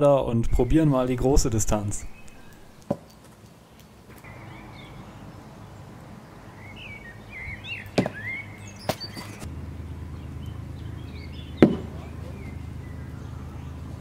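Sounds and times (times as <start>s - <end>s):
birds chirping and singing: 0.0s - 14.0s
sharp thumps: 8.0s - 8.2s, 11.6s - 12.0s.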